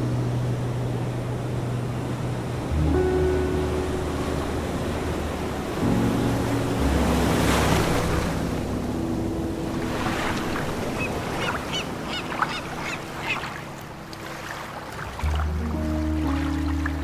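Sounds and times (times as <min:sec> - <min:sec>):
ocean surf washing in: 0:00.0 - 0:17.0
soft background music: 0:00.0 - 0:17.0.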